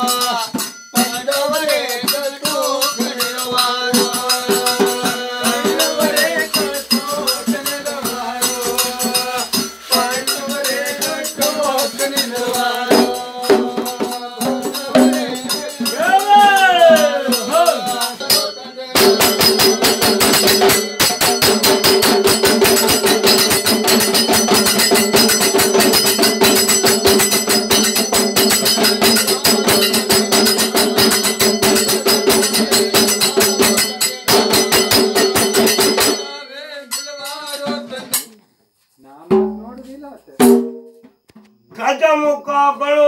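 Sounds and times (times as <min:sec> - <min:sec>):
clay pot drums beaten: 0:00.0 - 0:38.4, 0:39.2 - 0:42.4.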